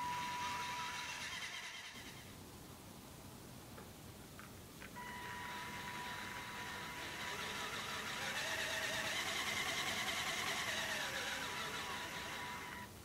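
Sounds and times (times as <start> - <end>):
small electric motors whirring: 0.0 - 2.2, 5.0 - 12.9.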